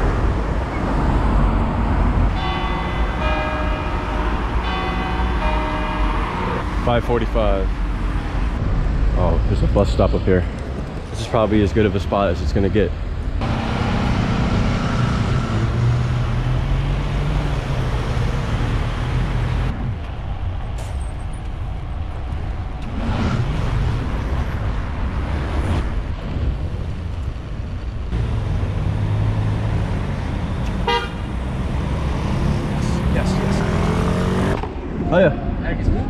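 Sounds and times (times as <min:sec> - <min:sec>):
cars passing: 0:00.0 - 0:36.0
car horn toot: 0:30.8 - 0:31.3.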